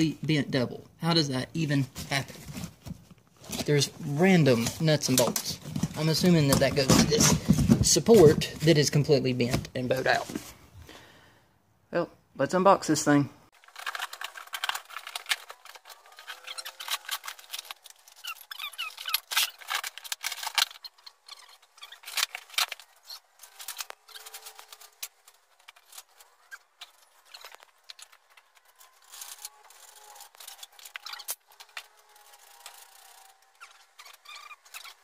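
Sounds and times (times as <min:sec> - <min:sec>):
cardboard tearing: 0:13.6 - 0:35.0.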